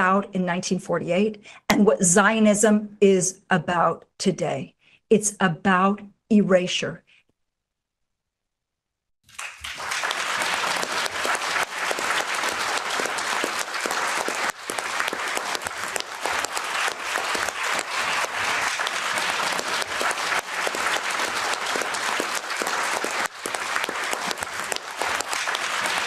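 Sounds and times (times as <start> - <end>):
large audience applauding: 9.2 - 26.0.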